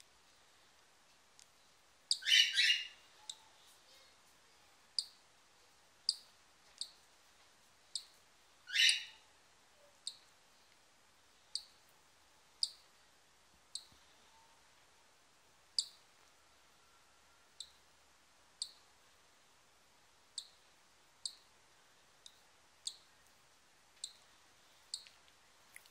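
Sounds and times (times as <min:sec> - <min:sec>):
loud chirp: 0:02.1 - 0:03.0, 0:08.7 - 0:09.2.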